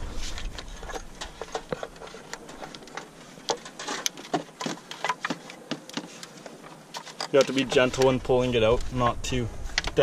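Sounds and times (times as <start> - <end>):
gloved hands clicking and knocking: 0.5 - 8.2.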